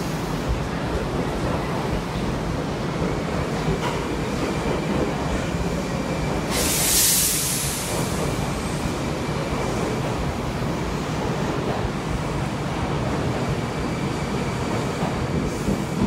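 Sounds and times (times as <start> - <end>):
train wheels rumbling: 0.0 - 16.0
burst of hiss: 6.5 - 8.2.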